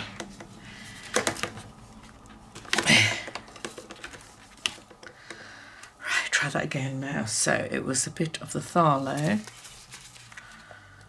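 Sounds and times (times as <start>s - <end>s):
plastic basket clicks: 1.1s - 1.7s
rustling scrape: 9.1s - 10.6s.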